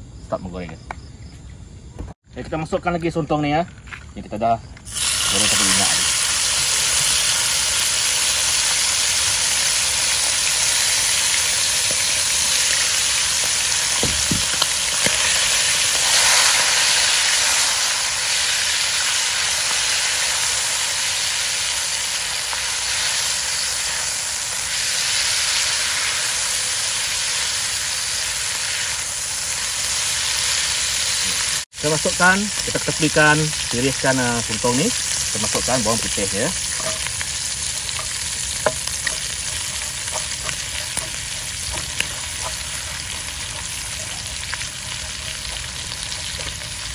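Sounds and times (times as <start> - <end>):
squid sizzling in hot oil: 4.9 - 46.9.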